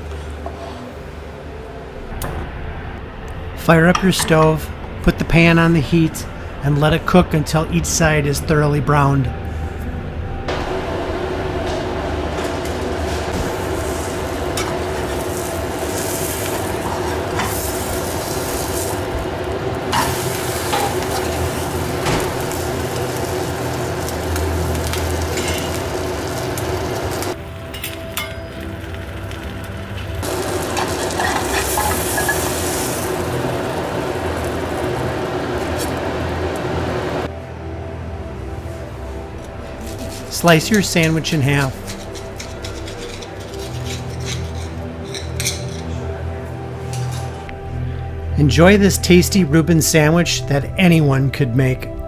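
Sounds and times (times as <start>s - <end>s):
low hum: 0.0s - 50.8s
sandwich sizzling in pan: 13.4s - 27.4s, 30.2s - 37.2s
metal spatula scraping: 30.8s - 32.6s, 41.6s - 45.9s.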